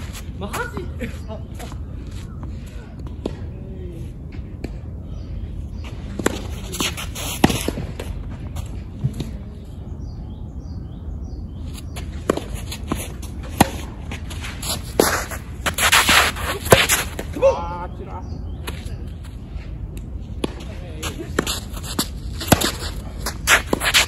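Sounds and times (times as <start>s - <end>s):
low outdoor rumble: 0.0s - 24.0s
tennis balls struck and bouncing: 5.8s - 9.4s, 12.0s - 17.4s, 20.0s - 24.0s.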